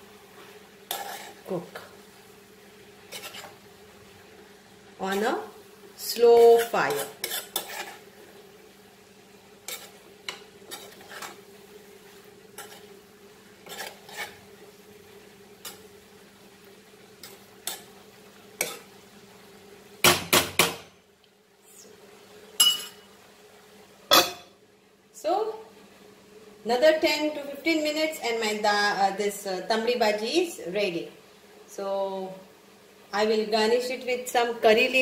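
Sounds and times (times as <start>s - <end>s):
metal spoon scraping pan: 0.9s - 1.4s, 3.1s - 3.6s, 6.2s - 8.0s, 9.6s - 11.4s, 12.6s - 13.0s, 13.6s - 14.4s, 17.2s - 17.9s, 18.6s - 18.9s.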